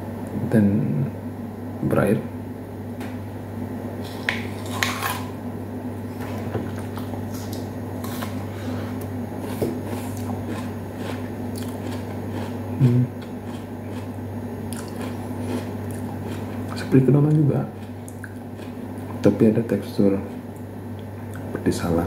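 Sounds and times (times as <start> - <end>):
low background hum: 0.0 - 22.0
chewing crunches and squelches: 9.0 - 21.6
person humming mm: 12.8 - 13.2.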